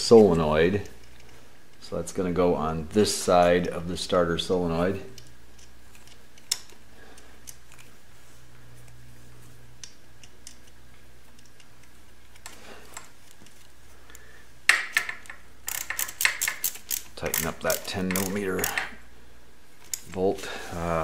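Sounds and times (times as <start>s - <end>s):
steady low hum: 0.0s - 21.0s
small metallic clicks: 5.1s - 7.9s, 9.8s - 19.0s, 19.8s - 20.2s.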